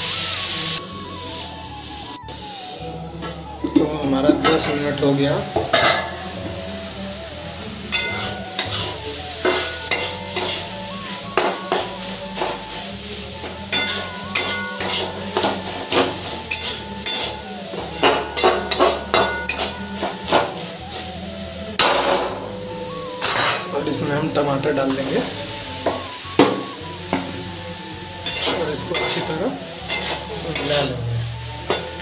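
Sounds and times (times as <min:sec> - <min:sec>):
onions sizzling in a pan: 0:00.0 - 0:32.0
metal spoon scraping a pan: 0:07.9 - 0:10.7, 0:13.7 - 0:20.5, 0:23.2 - 0:23.7, 0:28.2 - 0:31.0.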